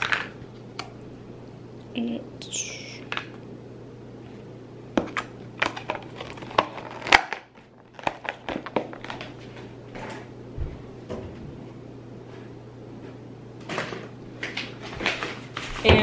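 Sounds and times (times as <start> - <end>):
steady low hum: 0.0 - 16.0
paper bag clicks and rustles: 5.6 - 10.2.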